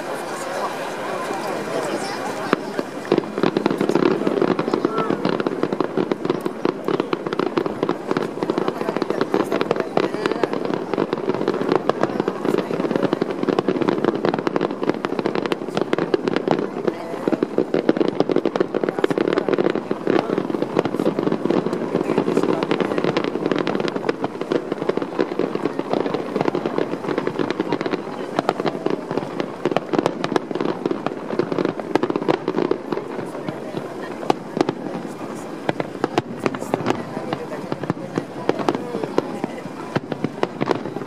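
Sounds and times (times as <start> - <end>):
fireworks popping and crackling: 0.0 - 41.0.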